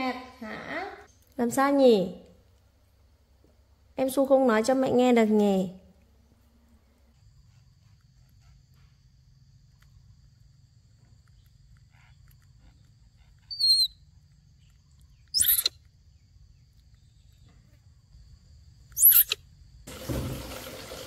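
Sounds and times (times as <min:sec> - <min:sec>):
baby monkey squeaking: 0:13.2 - 0:14.0, 0:15.2 - 0:15.9, 0:18.9 - 0:19.4.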